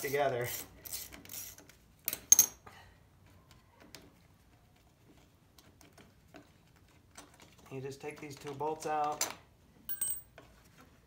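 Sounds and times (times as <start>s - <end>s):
socket wrench clinking on metal: 9.9s - 10.4s.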